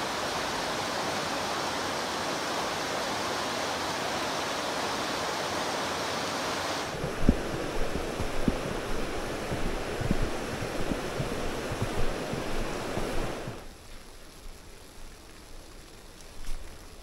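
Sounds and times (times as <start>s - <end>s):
river rushing over rocks: 0.0s - 13.7s
low thumps: 7.0s - 13.6s.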